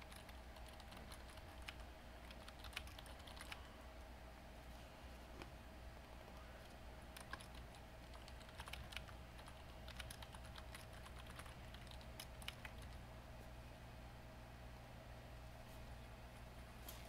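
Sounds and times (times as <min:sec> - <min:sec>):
typing on keyboard: 0:00.0 - 0:03.6, 0:07.1 - 0:13.0.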